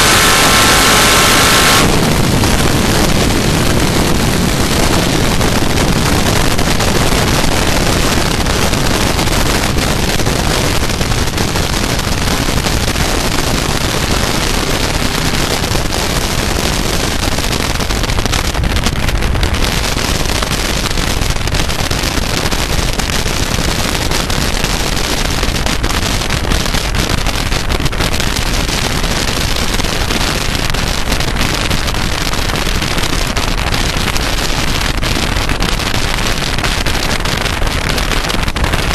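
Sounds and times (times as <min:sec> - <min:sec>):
wind buffeting microphone: 0:00.0 - 0:38.9.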